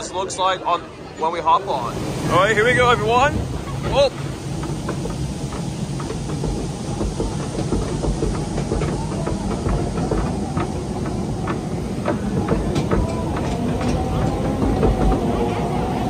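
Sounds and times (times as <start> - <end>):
ride boat low rumble: 0.0 - 16.0
clacks and knocks from ride: 3.4 - 16.0.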